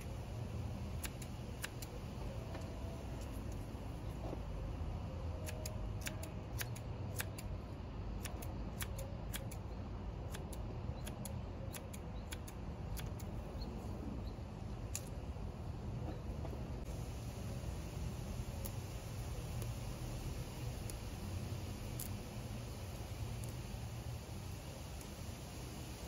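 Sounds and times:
low background rumble: 0.0 - 26.0
scissors snipping leaves: 1.0 - 3.7, 5.4 - 7.5, 8.2 - 9.7, 10.3 - 13.4, 21.8 - 22.2.

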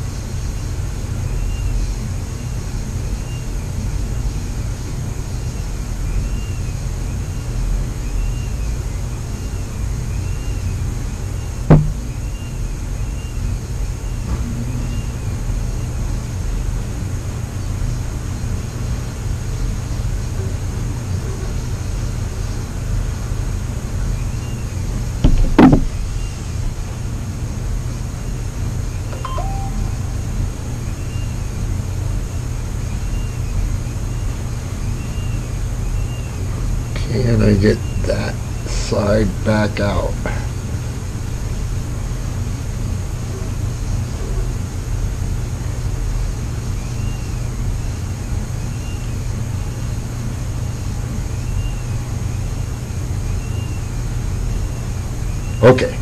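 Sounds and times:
steady low hum: 8.8 - 14.0, 14.6 - 48.6
sharp knocks: 11.7 - 12.1, 25.2 - 26.0
faint repeating chirp: 29.1 - 31.3.

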